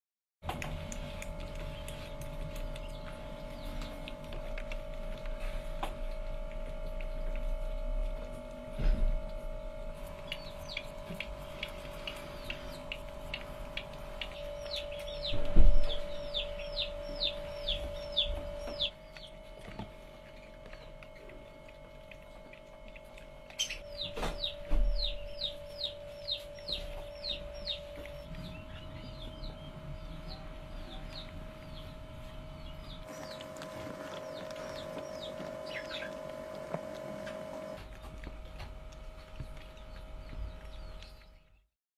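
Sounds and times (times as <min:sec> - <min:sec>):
steady hum: 0:00.4 - 0:41.6
baby hedgehogs squeaking: 0:10.1 - 0:22.4, 0:23.4 - 0:38.2, 0:39.2 - 0:41.6.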